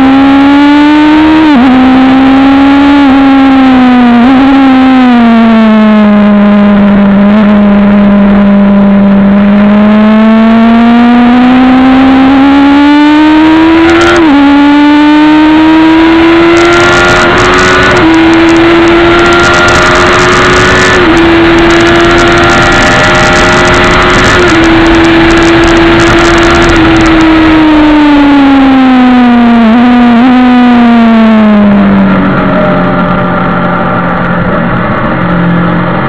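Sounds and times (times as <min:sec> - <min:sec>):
motorcycle engine revving and upshifting: 0:00.0 - 0:36.0
wind noise on microphone: 0:15.9 - 0:36.0.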